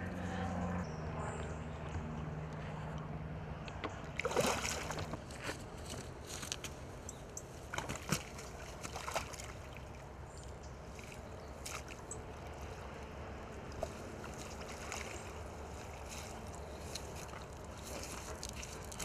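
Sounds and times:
water sloshing and splashing: 3.9s - 6.6s, 7.5s - 13.1s, 13.7s - 19.0s.

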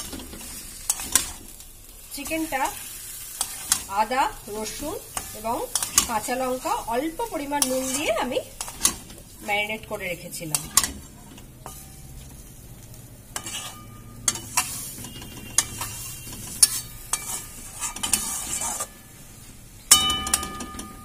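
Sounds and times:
metal spatula scraping a pan: 0.0s - 1.5s, 2.1s - 12.6s, 13.2s - 21.0s
chicken sizzling: 0.0s - 21.0s
spatula clinking against pan: 13.4s - 19.0s, 19.9s - 21.0s.

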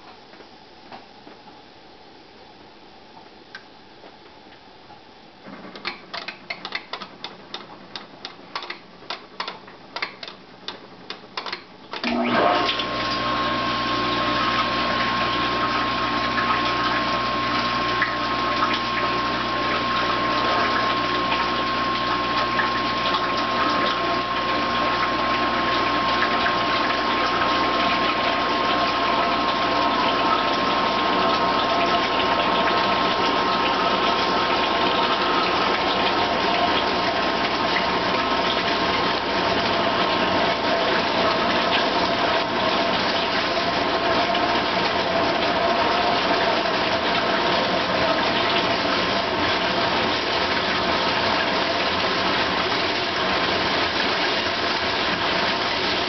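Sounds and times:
dishwasher motor hum and whine: 0.0s - 56.0s
dishwasher spraying water: 12.0s - 56.0s.

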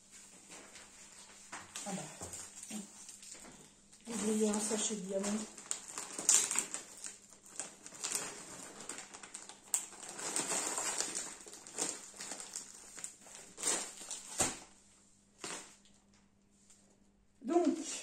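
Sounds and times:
plastic bags crinkling: 1.8s - 14.8s, 15.4s - 16.1s.

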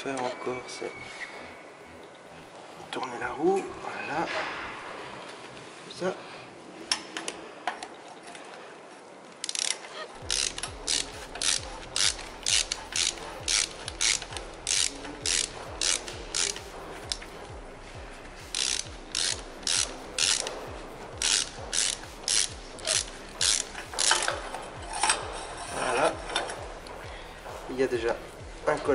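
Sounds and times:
hand ratchet clicking: 9.4s - 17.6s, 18.2s - 28.9s.

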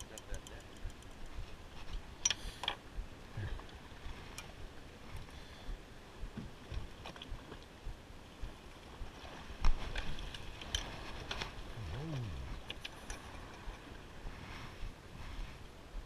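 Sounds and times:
clicks and knocks on boat: 0.0s - 1.3s
wind: 0.0s - 16.0s
low rising and falling tone: 11.8s - 12.7s.

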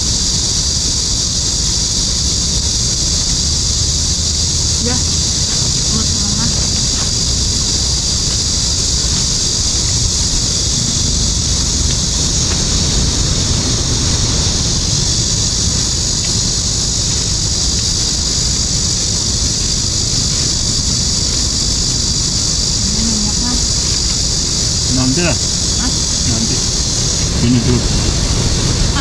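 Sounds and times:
high-pitched hiss: 0.0s - 29.0s
wind buffeting microphone: 0.0s - 29.0s.

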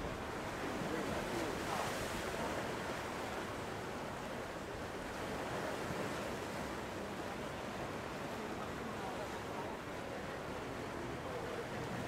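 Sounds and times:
sea waves on the shore: 0.0s - 12.0s.

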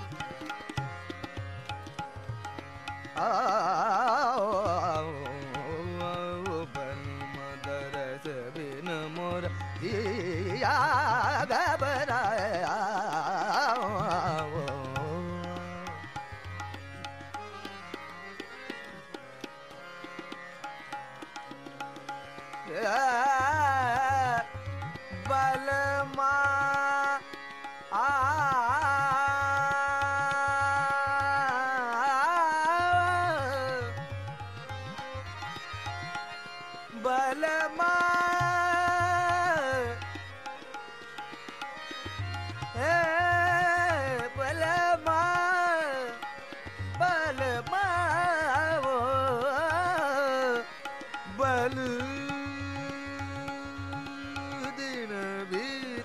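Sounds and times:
tabla drumming: 0.0s - 56.0s.

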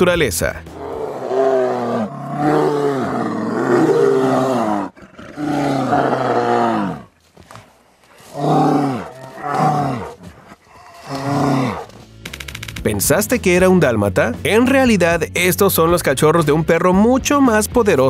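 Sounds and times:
bears calling: 8.2s - 12.2s.

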